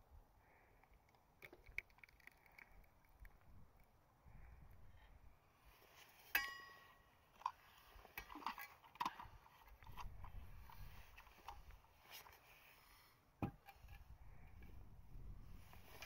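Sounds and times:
cap screwing clicks and taps: 0.8 - 3.4.

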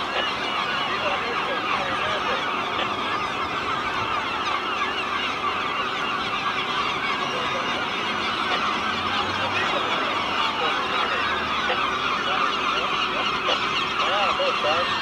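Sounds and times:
flock of gulls calling: 0.0 - 15.0.

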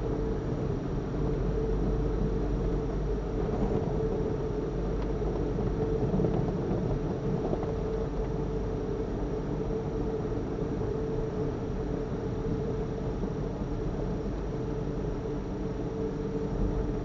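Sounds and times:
constant mid-pitched tone: 0.0 - 17.0.

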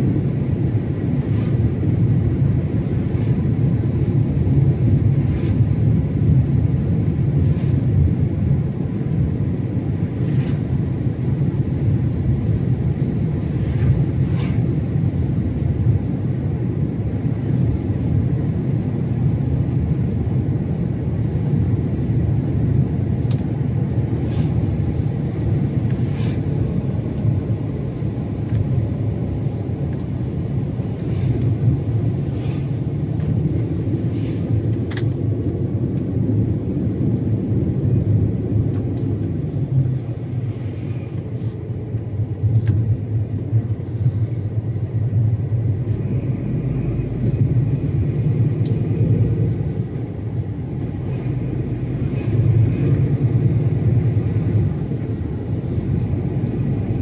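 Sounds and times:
truck engine and road rumble: 0.0 - 57.0.

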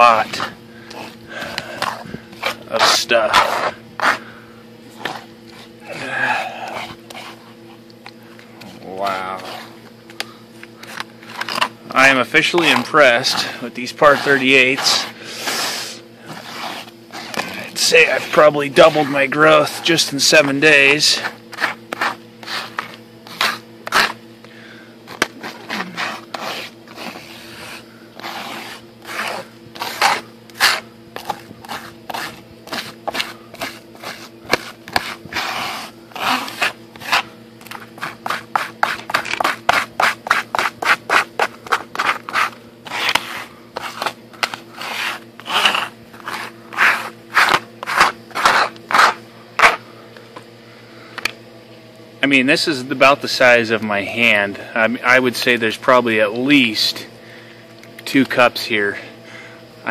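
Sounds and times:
plastic scraper rasping mesh: 10.8 - 24.2, 25.1 - 49.8.

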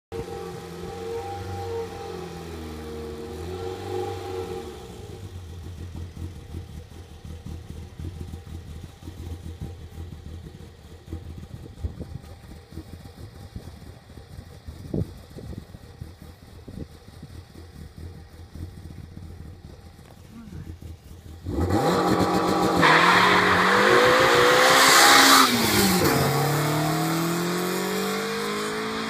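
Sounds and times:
small petrol engine idling: 4.3 - 21.6.

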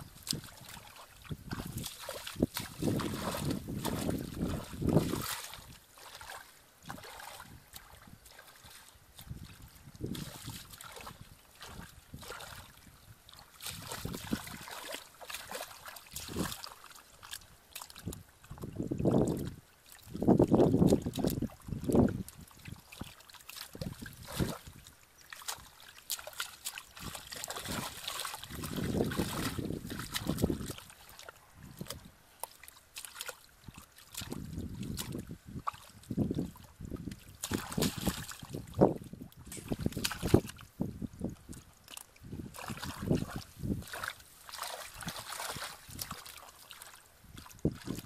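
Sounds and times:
splashing in muddy water: 0.0 - 48.0.

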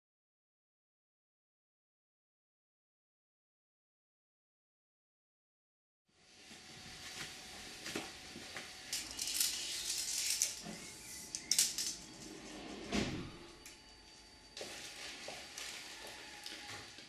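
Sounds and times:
tape measure blade rattling: 9.0 - 12.2.

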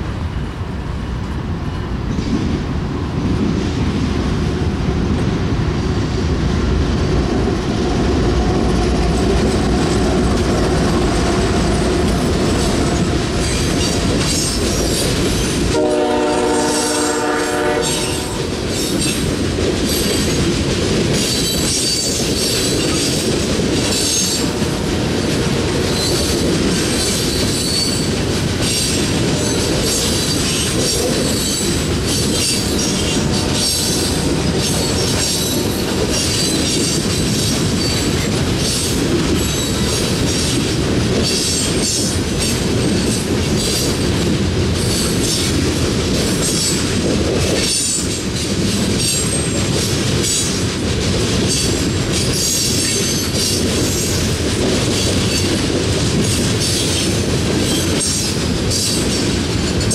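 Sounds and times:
freight train rumbling: 0.0 - 59.9
train horn: 15.7 - 18.6.

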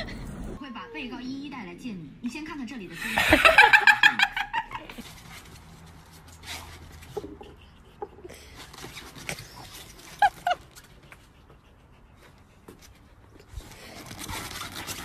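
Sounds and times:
small dog yipping: 10.2 - 10.6.

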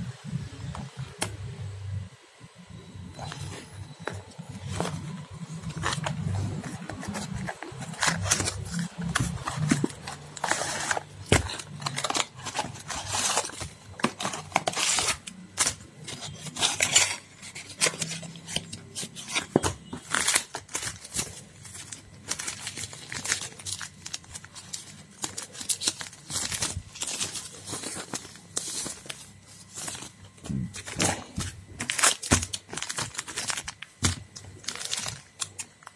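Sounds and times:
cardboard box opening: 3.2 - 23.9, 30.7 - 33.8
foil and paper crinkling: 3.2 - 35.9.

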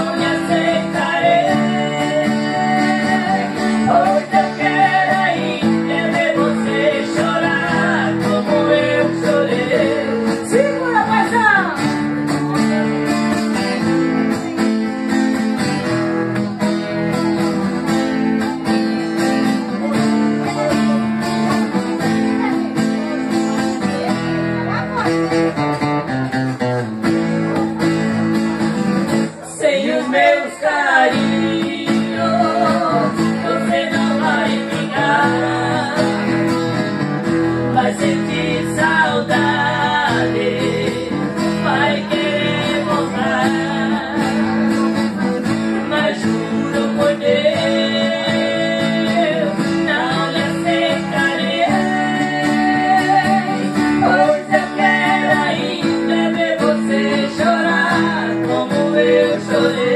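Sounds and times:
person singing: 0.0 - 11.8, 29.3 - 59.9
acoustic guitars strummed: 0.0 - 59.9.

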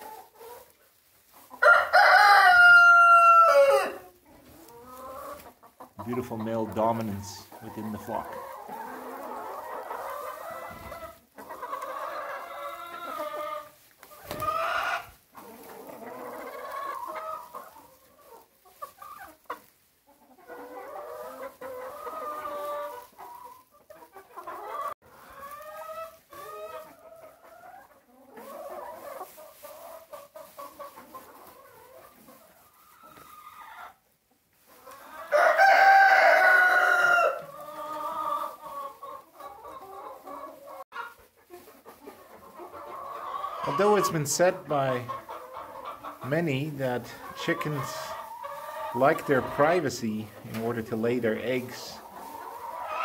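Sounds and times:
chickens clucking: 0.0 - 53.0
rooster crowing: 1.6 - 4.0, 35.3 - 37.5.

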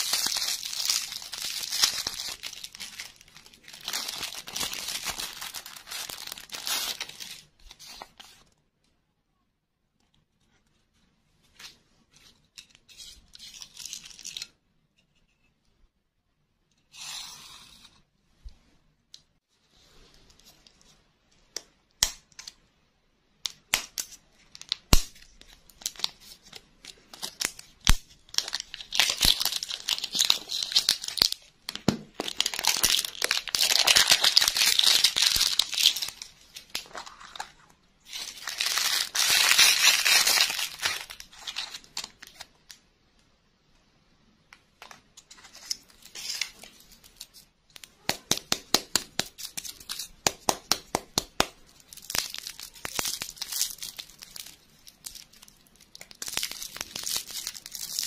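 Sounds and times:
foil wrapper tearing and crinkling: 0.0 - 8.1, 27.1 - 31.5, 32.2 - 37.4, 38.1 - 42.5, 51.8 - 58.0
candy clicks and taps: 47.7 - 53.4.

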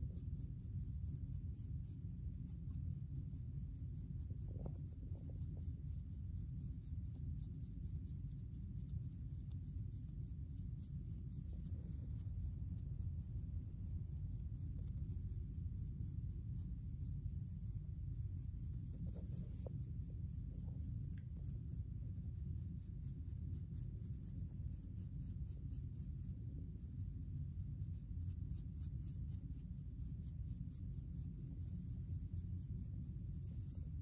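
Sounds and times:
comb scraping scalp: 1.2 - 26.0.

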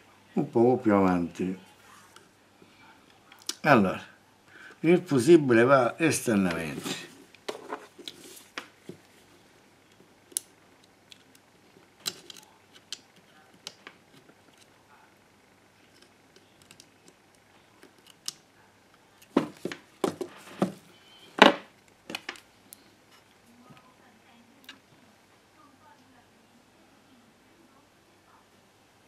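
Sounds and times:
parts knocking on workbench: 19.3 - 20.8, 21.4 - 21.7.

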